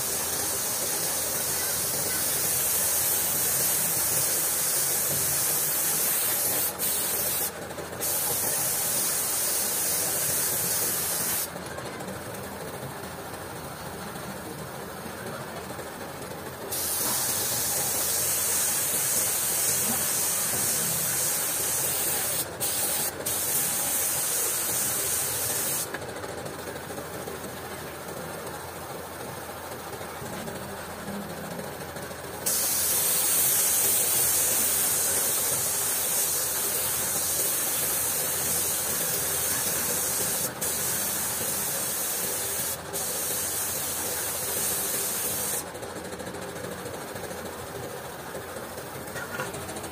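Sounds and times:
spray gun hissing: 0.0s - 11.5s, 16.7s - 25.9s, 32.4s - 45.6s.

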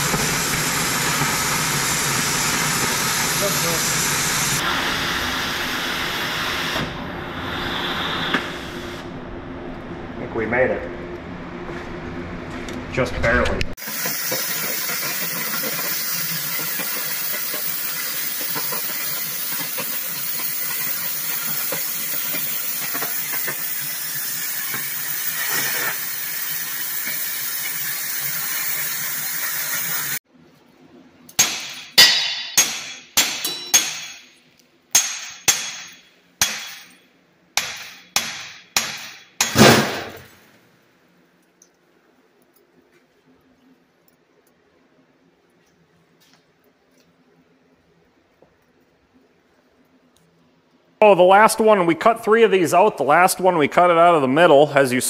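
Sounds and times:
cutting torch hissing: 0.0s - 9.0s, 13.8s - 30.2s
sharp metallic clanks: 31.4s - 40.3s.

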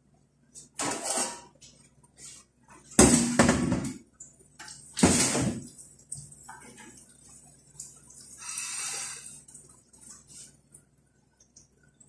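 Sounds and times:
metal kitchenware clattering: 0.8s - 1.6s.

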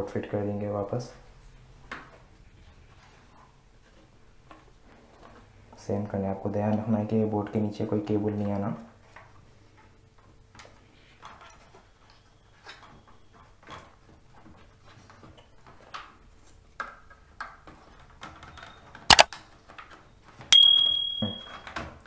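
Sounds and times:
sharp metallic clink: 20.6s - 21.6s.

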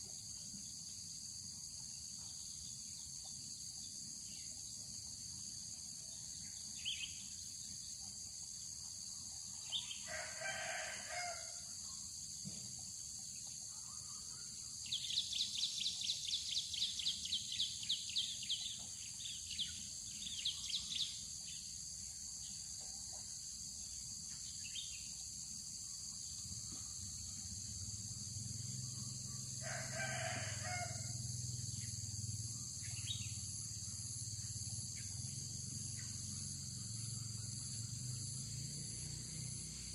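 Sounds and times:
insects chorus: 0.0s - 39.9s
rooster crowing: 10.0s - 11.6s, 29.6s - 31.2s
bird chirping: 32.7s - 33.5s.

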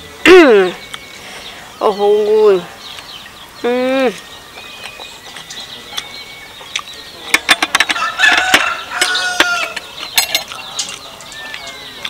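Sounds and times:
fork and spoon clinking on plate: 6.7s - 11.9s
rooster crowing: 7.9s - 9.9s.

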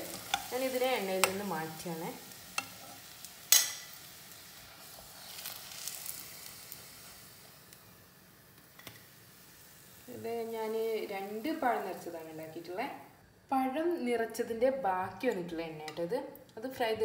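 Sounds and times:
oil sizzling in a pan: 0.0s - 13.1s.

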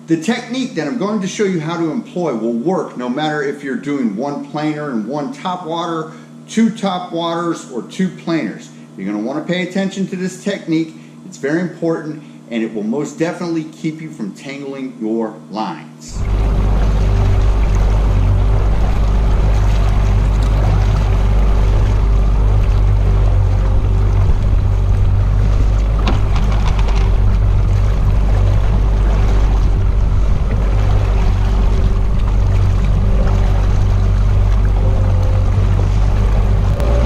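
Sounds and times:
boat engine droning: 0.0s - 37.0s
water and wind rushing: 16.1s - 37.0s.

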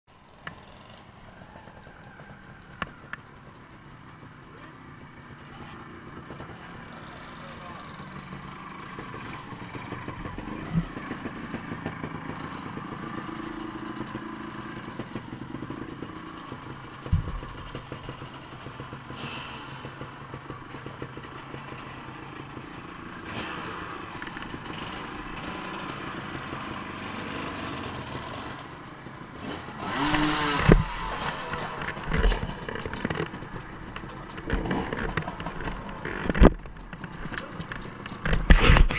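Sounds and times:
dirt bike engines idling and revving: 0.1s - 38.9s
sharp knocks: 17.0s - 18.1s
thumps: 17.0s - 18.2s.

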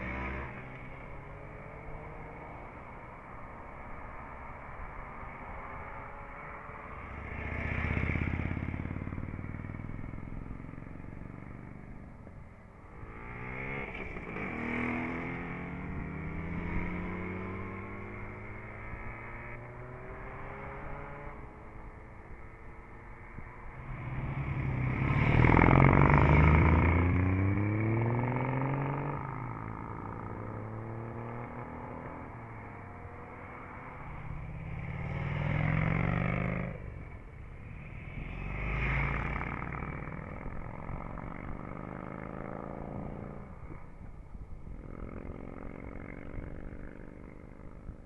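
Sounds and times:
vehicles passing and accelerating: 0.0s - 48.0s.

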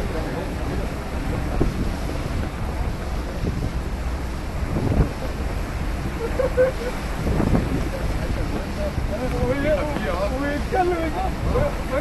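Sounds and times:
rush of churning water: 0.0s - 12.0s
wind buffeting microphone: 0.0s - 12.0s.

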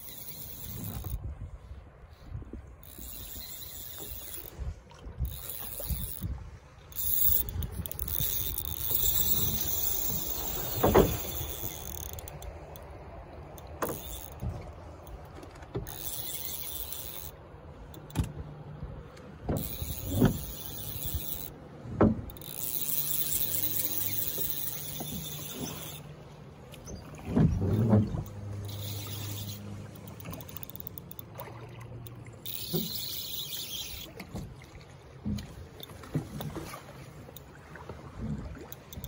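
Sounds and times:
fly reel drag buzzing: 0.0s - 1.2s, 2.8s - 12.9s, 13.5s - 15.2s, 15.8s - 18.1s, 19.6s - 21.6s, 22.3s - 26.2s, 27.7s - 31.4s, 32.0s - 34.3s.

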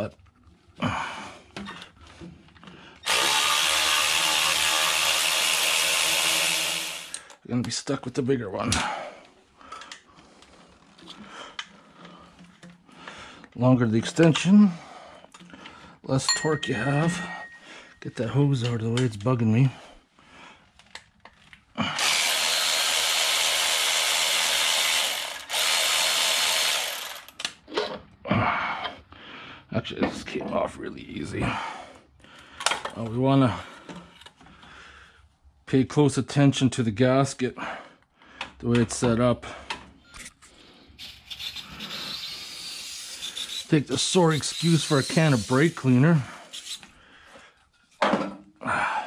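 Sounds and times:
power ratchet motor running: 3.0s - 7.3s, 22.0s - 27.4s.

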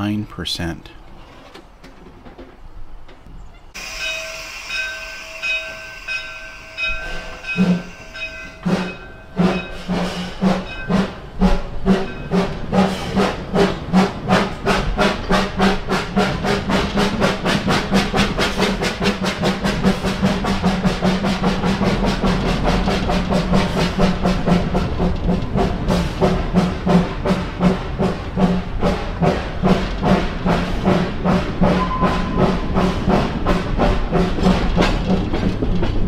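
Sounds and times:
steam locomotive chuffing: 3.7s - 36.0s
high-pitched tone: 31.8s - 32.5s.

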